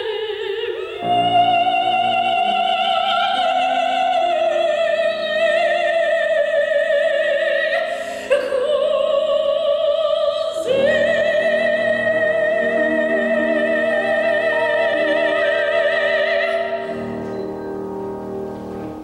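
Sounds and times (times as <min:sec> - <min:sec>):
soprano singing with vibrato: 0:00.0 - 0:18.7
piano accompaniment: 0:00.8 - 0:06.6, 0:10.6 - 0:19.0.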